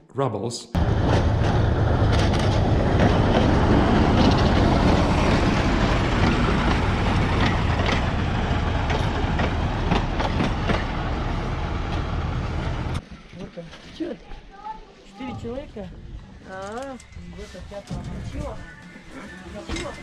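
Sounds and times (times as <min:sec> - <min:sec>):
diesel locomotive engine rumble: 0:00.8 - 0:13.0
train wheels clacking on rail joints: 0:01.0 - 0:13.0.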